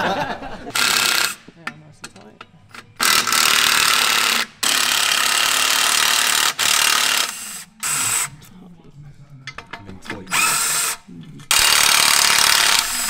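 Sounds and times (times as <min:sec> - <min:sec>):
cordless power tool spinning bolts: 0:00.7 - 0:01.5, 0:03.0 - 0:08.3, 0:10.3 - 0:13.0.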